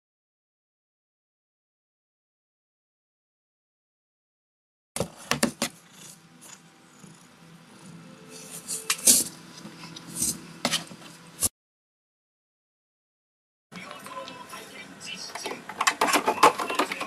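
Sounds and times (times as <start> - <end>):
cat knocking cardboard: 5.0 - 5.8.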